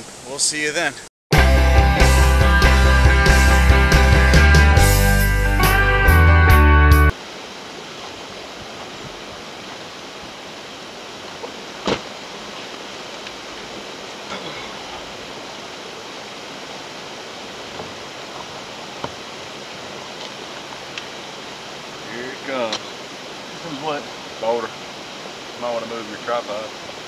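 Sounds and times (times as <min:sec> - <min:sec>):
outdoor hiss: 0:00.0 - 0:01.1, 0:07.1 - 0:27.0.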